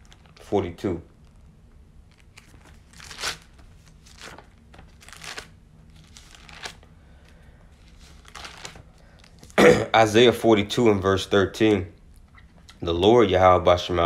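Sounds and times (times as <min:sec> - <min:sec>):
book pages turning: 0:02.0 - 0:09.6.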